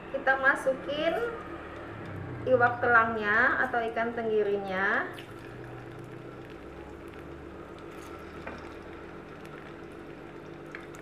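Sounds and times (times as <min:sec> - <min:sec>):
fish sizzling in hot oil: 0:05.2 - 0:11.0.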